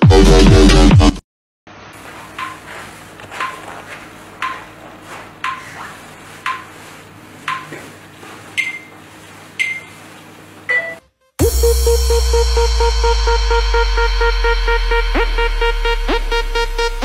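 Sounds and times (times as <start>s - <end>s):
short electronic beeps: 8.6s - 8.9s, 9.6s - 9.9s.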